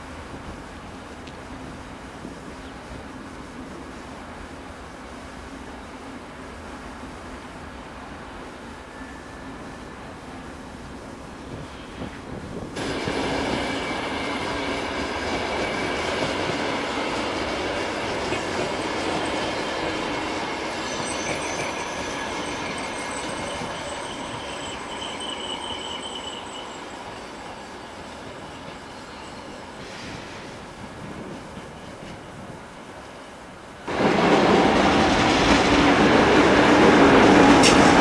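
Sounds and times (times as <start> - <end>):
electric train wheels rumbling: 0.0 - 38.0
high wheel squeal: 12.8 - 30.6.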